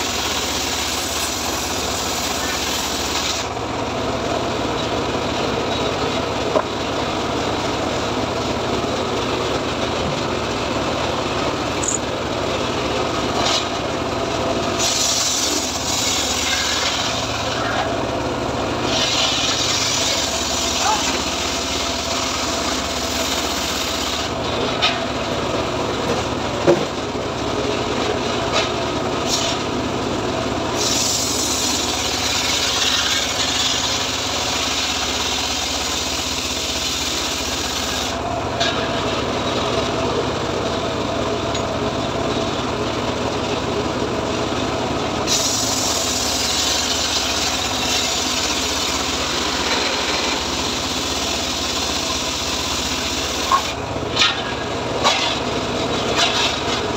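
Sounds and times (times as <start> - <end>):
saw blade cutting wood: 0.0 - 3.6, 13.3 - 13.8, 14.7 - 18.0, 18.8 - 25.1, 28.5 - 29.7, 30.7 - 39.0, 45.3 - 56.9
engine-driven log saw running: 0.0 - 56.9.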